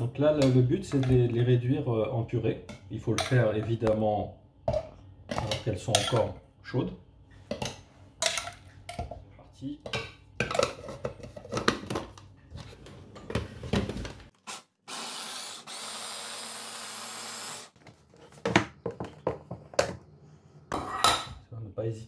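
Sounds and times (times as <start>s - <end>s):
electric chopper motor running: 14.9s - 17.8s.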